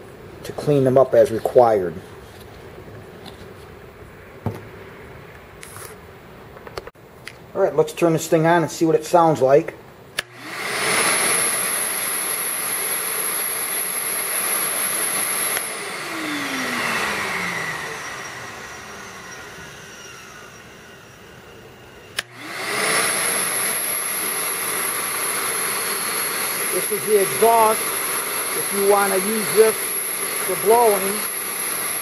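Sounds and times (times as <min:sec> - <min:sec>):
shop vacuum motor whining: 0:10.2 - 0:32.0.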